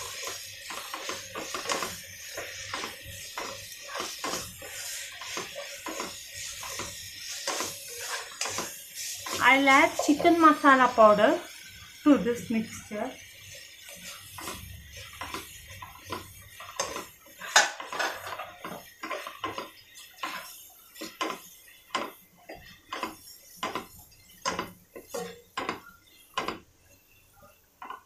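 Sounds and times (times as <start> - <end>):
spatula scraping a pan: 0.0 - 28.0.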